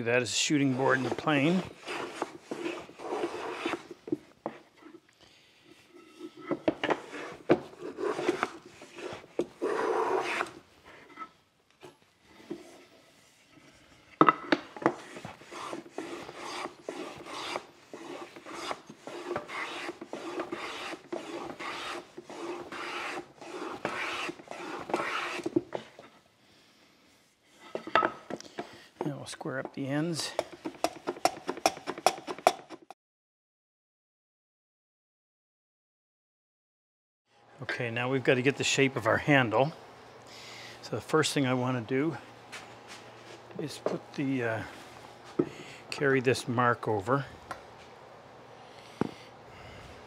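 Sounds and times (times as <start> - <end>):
hand plane shearing wood: 0.4 - 4.6, 6.4 - 11.1, 14.8 - 26.0, 30.3 - 32.8.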